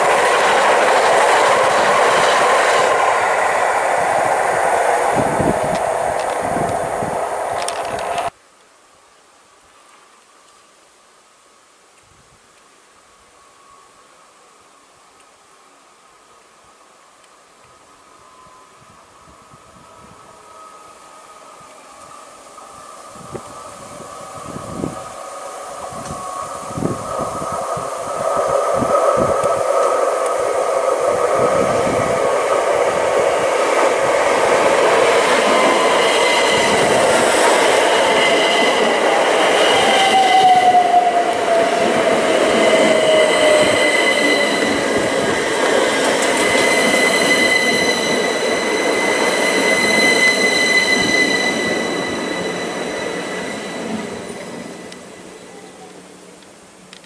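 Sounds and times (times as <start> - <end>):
passenger train passing at speed: 0.0 - 8.4, 13.0 - 57.0
high whine: 17.6 - 57.0.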